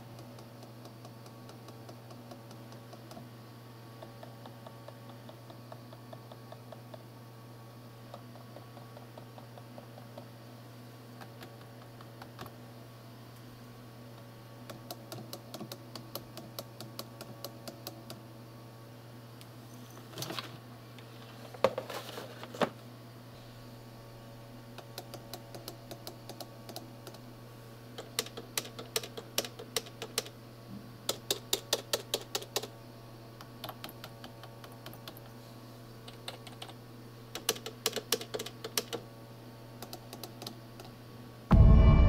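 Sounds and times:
typing on keyboard: 14.8s - 18.2s, 28.0s - 30.3s, 31.1s - 32.7s, 36.1s - 39.0s.

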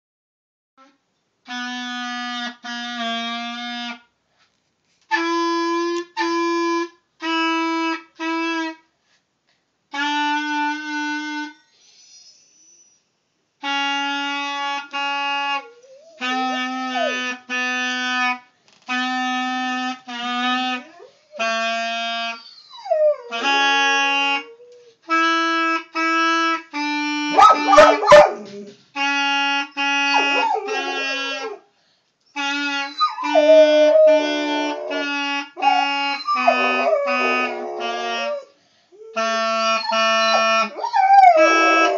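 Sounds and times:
clarinet playing held notes: 1.5s - 4.0s, 5.1s - 8.8s, 13.6s - 31.6s, 32.3s - 41.9s
dog howling: 27.4s - 28.7s, 30.0s - 31.6s, 33.0s - 38.5s, 39.9s - 41.9s.

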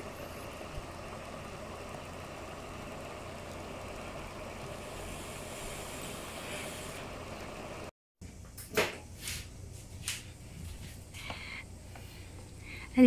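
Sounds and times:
steam hissing through lid: 4.7s - 7.0s.

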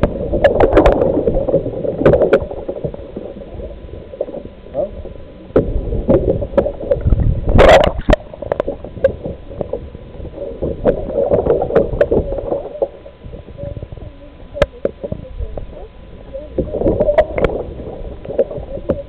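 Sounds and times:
water gushing: 0.0s - 19.0s
water sloshing and gurgling: 0.0s - 19.0s.

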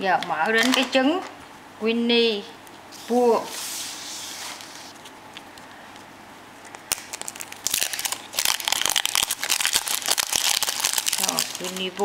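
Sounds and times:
foil wrapper crinkling: 6.6s - 12.0s.

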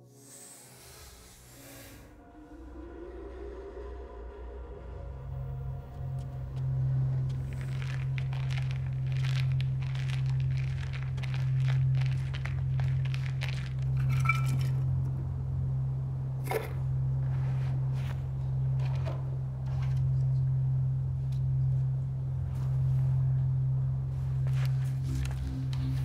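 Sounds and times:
steady low hum: 0.0s - 26.0s
footsteps crunching on path: 7.3s - 14.7s.

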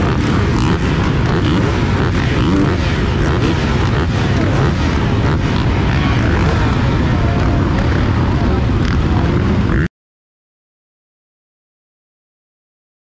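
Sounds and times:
motocross bike engines revving: 0.0s - 9.9s.

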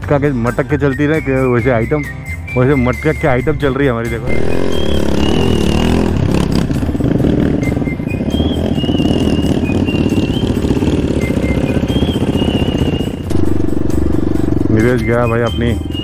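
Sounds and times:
motorcycle engine running low revs: 4.2s - 16.0s.

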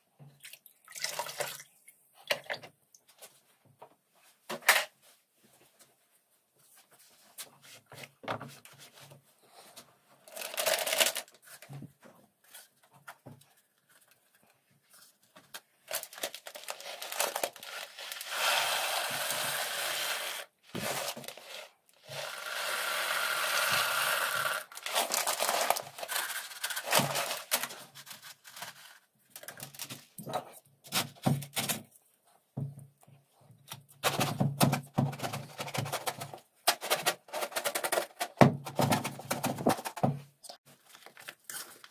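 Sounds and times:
popcorn kernels pouring rattle: 10.3s - 11.2s, 16.0s - 27.7s
plastic bag crinkling: 10.3s - 11.4s, 15.9s - 18.3s, 24.7s - 30.2s.

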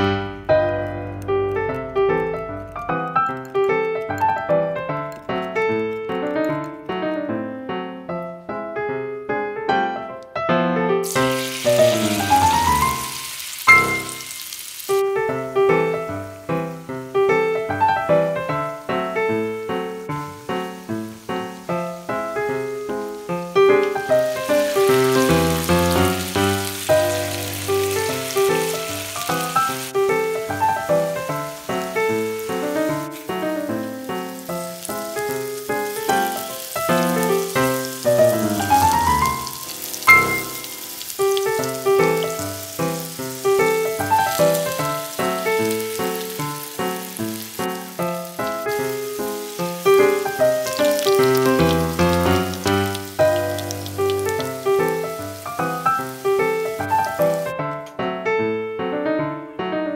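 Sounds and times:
tofu sizzling in hot oil: 11.0s - 57.7s
background music: 15.4s - 57.8s.

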